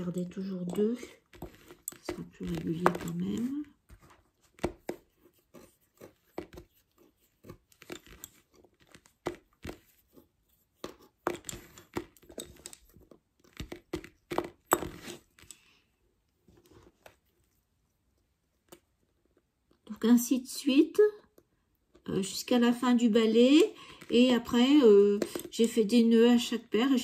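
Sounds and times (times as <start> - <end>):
lace bobbins clicking: 0.0 - 5.1.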